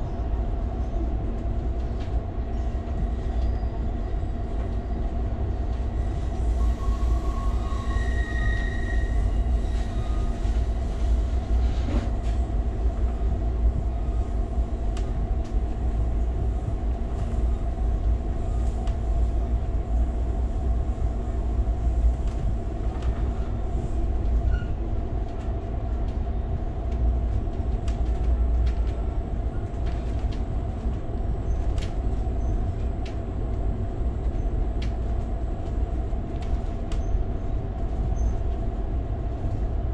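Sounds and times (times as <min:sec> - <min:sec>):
train interior rumble: 0:00.0 - 0:39.9
high squeal: 0:06.6 - 0:09.3.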